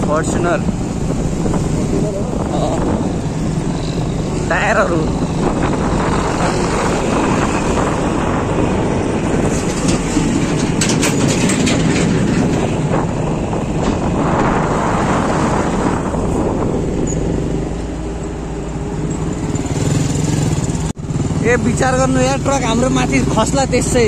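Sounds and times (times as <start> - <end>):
engines rumbling: 0.0 - 24.0
tyres on dirt road: 0.0 - 24.0
wind: 0.0 - 24.0.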